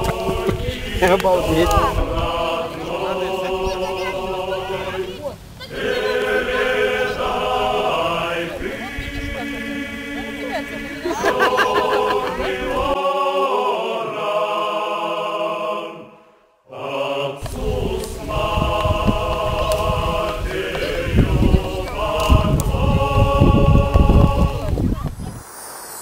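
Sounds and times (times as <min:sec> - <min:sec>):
low rumbling noise: 0:00.0 - 0:13.0, 0:16.8 - 0:25.4
choir singing held chords: 0:00.0 - 0:24.8.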